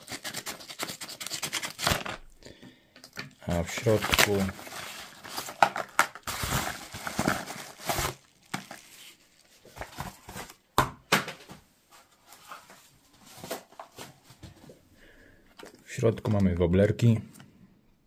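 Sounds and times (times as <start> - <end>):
packaging rustling and crinkling: 0.0 - 2.4, 3.0 - 10.7, 12.0 - 14.7.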